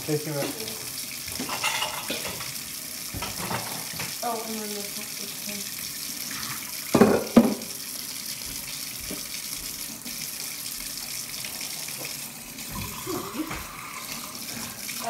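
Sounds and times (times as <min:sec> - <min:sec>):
dishes being rinsed: 0:00.0 - 0:15.0
faucet running into sink: 0:00.0 - 0:15.0
dishware knocking: 0:01.4 - 0:02.5, 0:06.9 - 0:07.7.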